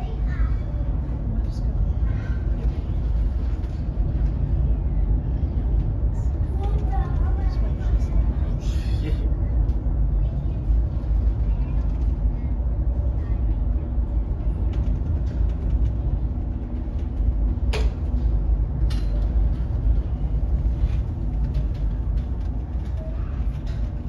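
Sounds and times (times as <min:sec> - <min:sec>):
low rumble inside a ship: 0:00.0 - 0:24.0.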